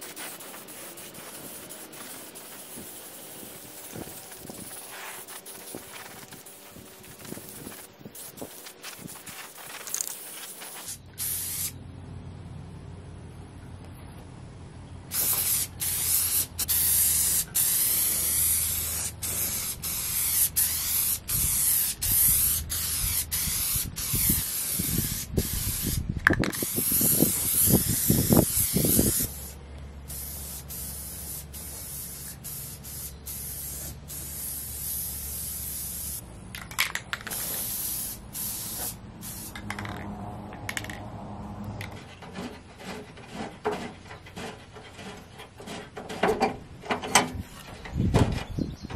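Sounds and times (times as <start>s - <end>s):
spray paint can spraying: 0.0s - 11.8s, 15.1s - 41.0s.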